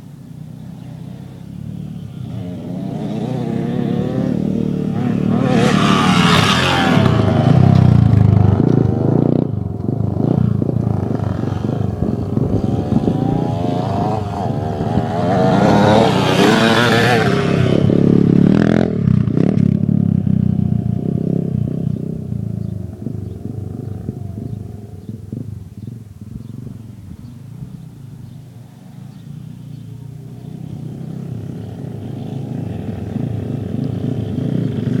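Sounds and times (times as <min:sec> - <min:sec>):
dirt bike engine revving: 0:00.5 - 0:25.6.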